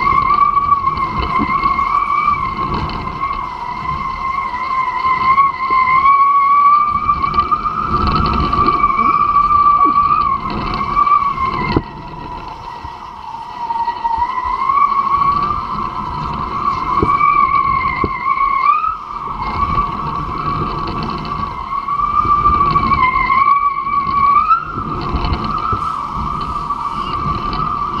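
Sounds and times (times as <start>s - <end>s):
hydrofoil whistling through water: 0.0s - 28.0s
wind buffeting on microphone: 0.0s - 28.0s.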